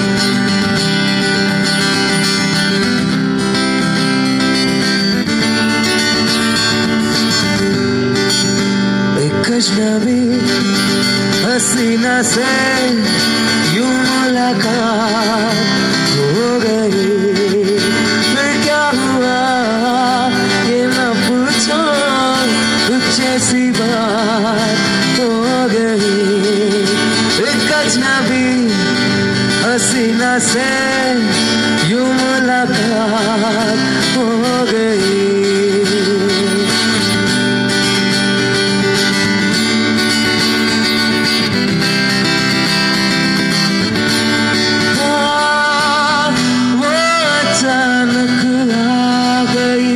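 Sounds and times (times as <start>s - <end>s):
acoustic guitar: 0.0s - 49.9s
man singing with vibrato: 0.0s - 49.9s.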